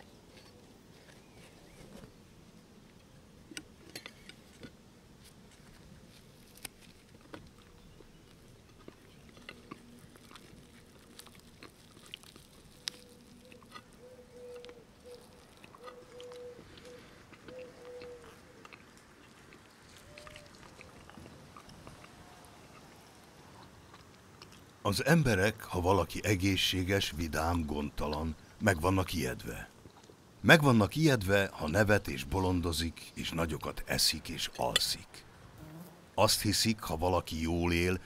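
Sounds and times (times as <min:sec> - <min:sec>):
bite into crusty bread: 0:03.5 - 0:24.8.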